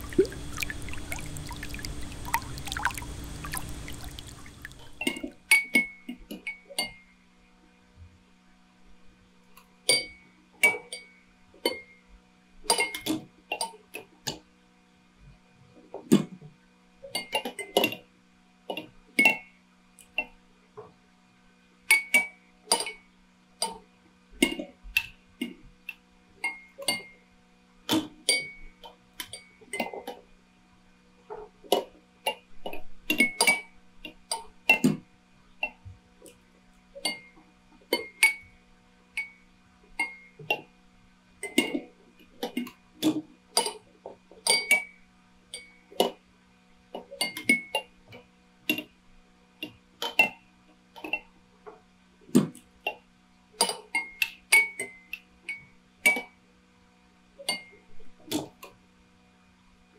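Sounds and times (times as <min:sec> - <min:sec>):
low hum: 0:00.0 - 0:05.4.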